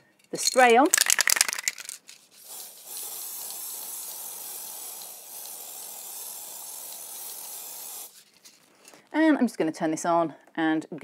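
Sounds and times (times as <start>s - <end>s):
aerosol spray hissing: 2.4s - 8.2s.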